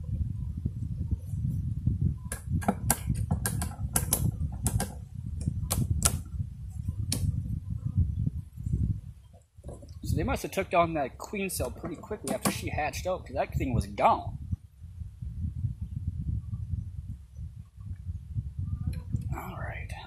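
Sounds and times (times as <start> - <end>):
wind buffeting microphone: 0.0 - 20.0
sharp irregular clicks: 2.3 - 5.0.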